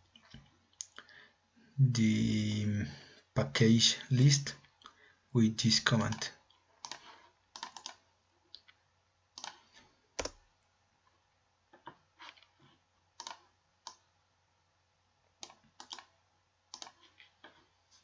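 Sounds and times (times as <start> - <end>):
computer mouse clicking: 6.1 - 8.0, 9.4 - 10.4, 13.2 - 14.0, 15.4 - 17.2.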